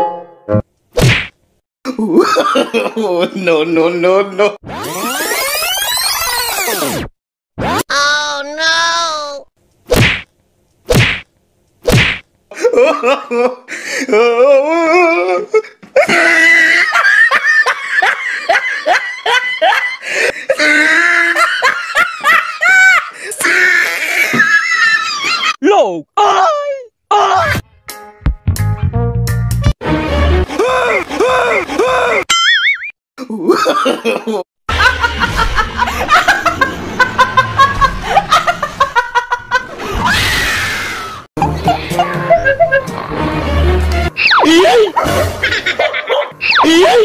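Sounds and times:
person laughing hard: 1.9s - 3.2s, 12.5s - 25.6s, 30.4s - 32.2s, 33.2s - 40.1s, 41.4s - 43.2s, 44.4s - 47.0s
person screaming: 23.4s - 24.4s, 26.2s - 27.6s, 44.4s - 45.0s, 46.5s - 47.0s.

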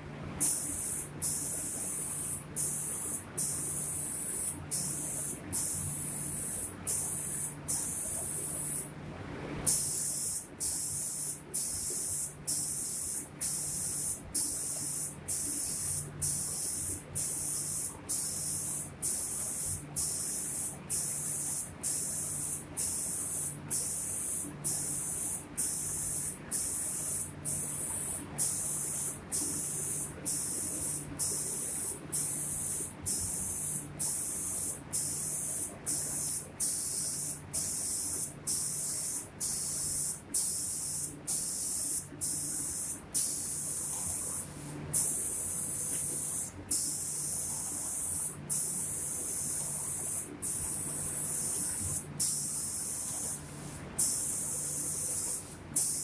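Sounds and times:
low machine hum: 0.0s - 9.7s
spray guns hissing in bursts: 0.4s - 8.9s, 9.7s - 56.0s.

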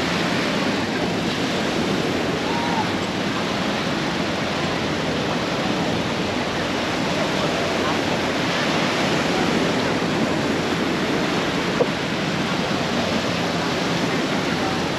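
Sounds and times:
small waves breaking on shore: 0.0s - 14.9s
faint chatter of people: 0.5s - 14.9s.

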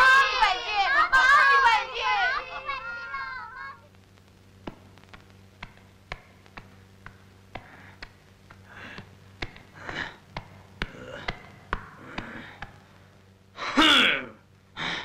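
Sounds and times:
cartoon walking taps: 4.6s - 9.7s.

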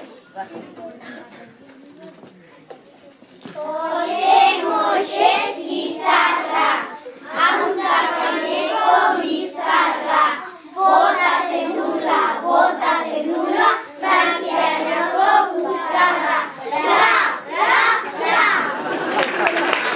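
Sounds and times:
children singing in unison: 3.6s - 19.1s.

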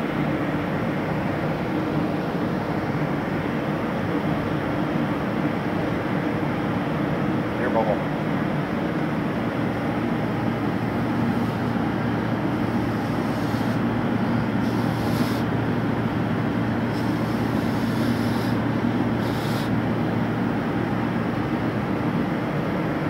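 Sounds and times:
machine hum with rushing noise: 0.0s - 23.0s.

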